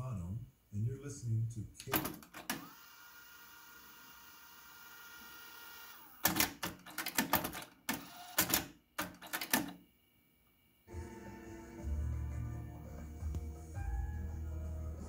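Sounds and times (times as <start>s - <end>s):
mechanical clicks and clunks: 1.8s - 2.7s, 6.2s - 9.8s
cassette deck rewinding whine: 1.9s - 9.8s
music playback: 10.9s - 15.0s.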